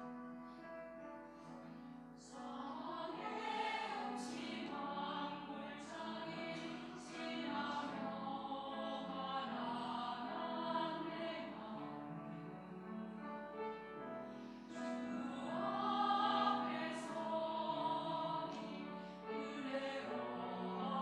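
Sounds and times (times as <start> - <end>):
piano: 0.0 - 21.0
choir singing a hymn: 2.2 - 21.0.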